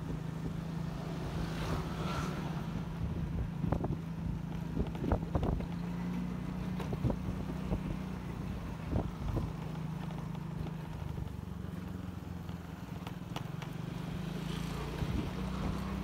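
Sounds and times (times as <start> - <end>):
motorcycle engine running: 0.0 - 16.0.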